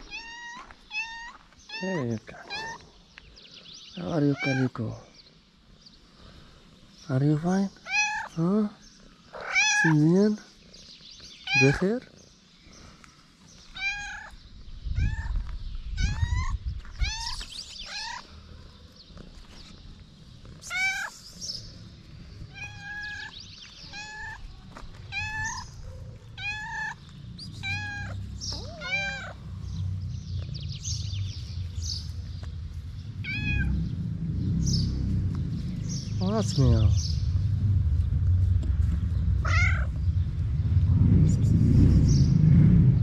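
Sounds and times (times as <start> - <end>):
cat meowing: 0.0 - 2.8, 7.8 - 8.3, 9.3 - 10.0, 13.7 - 14.4, 15.0 - 18.3, 20.6 - 21.1, 22.5 - 27.0, 27.6 - 29.4, 33.2 - 33.8, 39.4 - 40.0.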